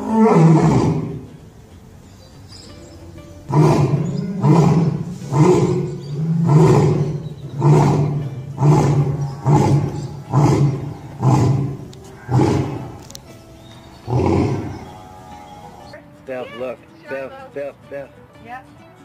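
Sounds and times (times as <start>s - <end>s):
lion roaring: 0.0s - 1.3s, 3.5s - 13.0s, 14.1s - 15.0s.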